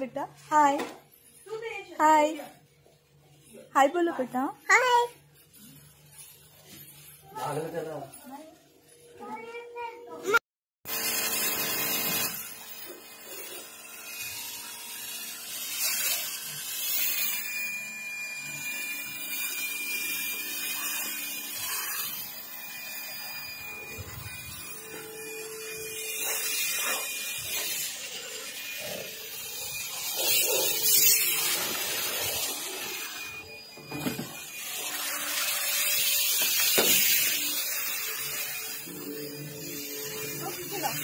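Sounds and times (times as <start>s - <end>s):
pressure washer pump humming: 10.9s - 41.0s
water jet hissing: 29.0s - 33.4s.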